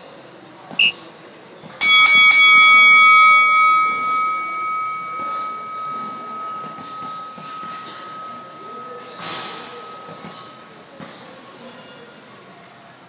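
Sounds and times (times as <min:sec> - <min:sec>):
boxing bell ringing: 0:01.8 - 0:11.0.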